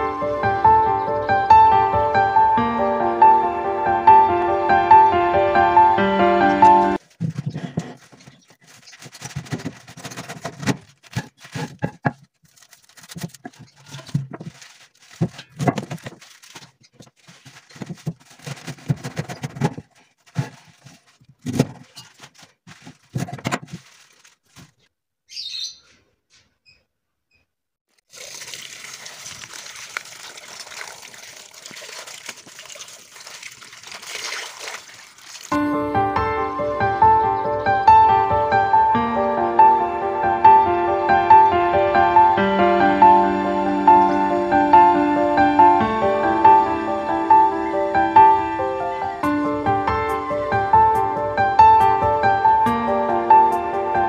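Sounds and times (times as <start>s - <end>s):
knife cutting cabbage on board: 7.2s - 12.3s, 13.0s - 23.8s
tap water splashing: 28.0s - 35.6s.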